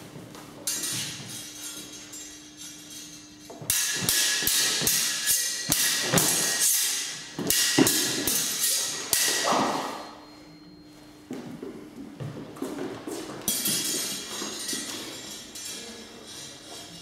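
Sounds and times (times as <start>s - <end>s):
sword blades clashing: 0.7s - 10.3s.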